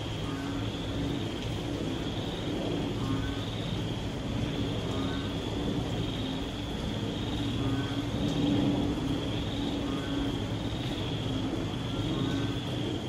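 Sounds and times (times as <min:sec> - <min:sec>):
rain falling steadily: 0:00.0 - 0:13.0
frog low croak: 0:01.9 - 0:13.0
frog high call: 0:02.3 - 0:03.8, 0:04.8 - 0:05.5, 0:07.3 - 0:08.3, 0:09.5 - 0:11.1, 0:11.9 - 0:12.8.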